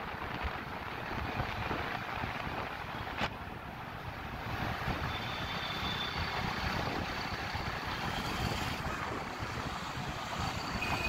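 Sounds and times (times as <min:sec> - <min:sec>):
road traffic noise: 0:00.0 - 0:11.0
wind on microphone: 0:06.2 - 0:11.0.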